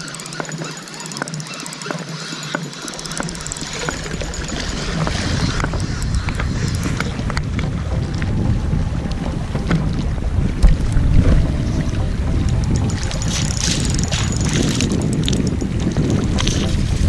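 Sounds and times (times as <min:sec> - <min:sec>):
wind buffeting microphone: 0:03.1 - 0:17.0.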